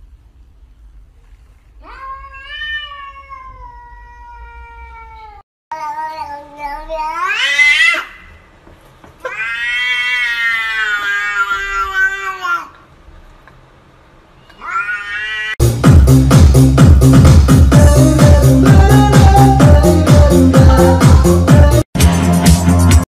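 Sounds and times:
cat meowing: 1.8 - 8.2, 9.2 - 12.8, 14.4 - 15.6.

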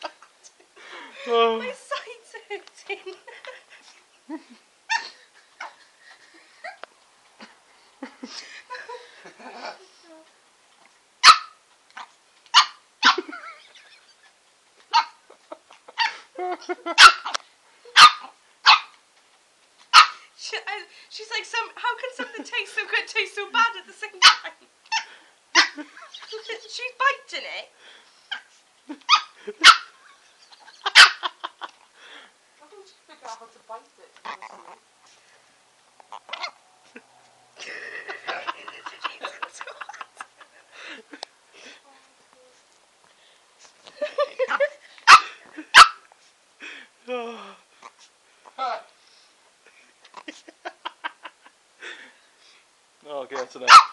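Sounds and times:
puppy barking: 11.2 - 13.3, 14.9 - 15.2, 16.9 - 17.4, 18.0 - 19.0, 19.9 - 20.2, 24.2 - 25.8, 29.1 - 30.0, 30.8 - 31.3, 36.2 - 36.6, 44.5 - 46.1, 53.4 - 53.9.

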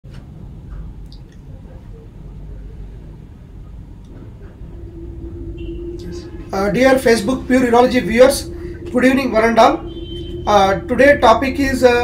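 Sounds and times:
faint steady hum: 1.0 - 12.0
low steady rumble: 2.6 - 12.0.

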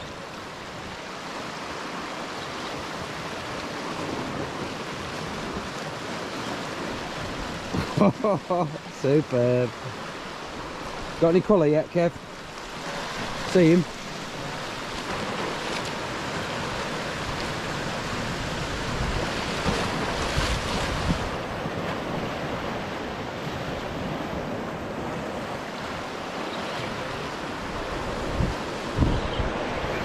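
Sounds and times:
sea waves on rocky shore: 0.0 - 30.0
wind buffeting microphone: 12.9 - 26.2, 26.9 - 30.0.

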